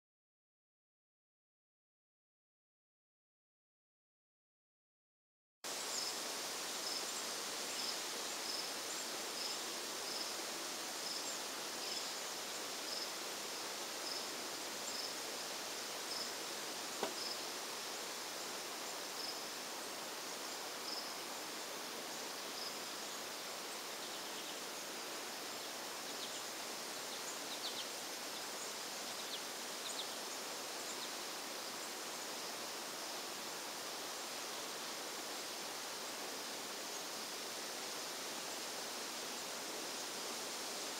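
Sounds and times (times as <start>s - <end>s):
steady outdoor hiss: 5.6s - 40.9s.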